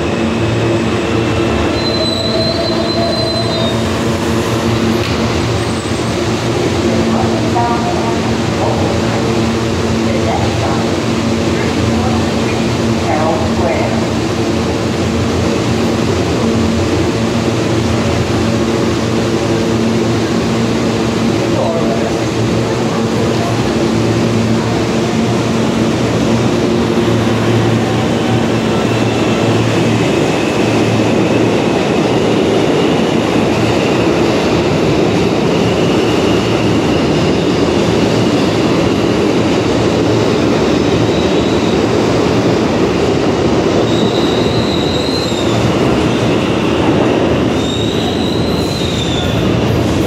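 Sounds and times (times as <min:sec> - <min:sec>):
steel wheels rumbling on rail: 0:00.0 - 0:50.0
subway train hum: 0:00.0 - 0:50.0
high-pitched wheel squeal: 0:01.7 - 0:04.0, 0:43.9 - 0:45.7, 0:47.5 - 0:49.4.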